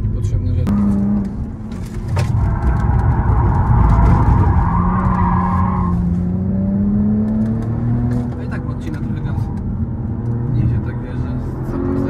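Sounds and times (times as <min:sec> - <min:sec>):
car engine: 0:00.0 - 0:12.0
road rumble: 0:00.0 - 0:12.0.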